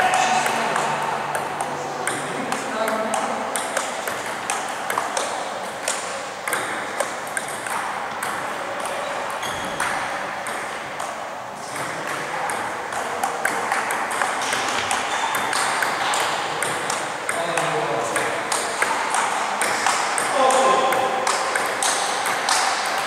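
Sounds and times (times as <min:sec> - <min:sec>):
hall murmur: 0:00.0 - 0:02.5
table tennis ball clicking: 0:00.4 - 0:23.0.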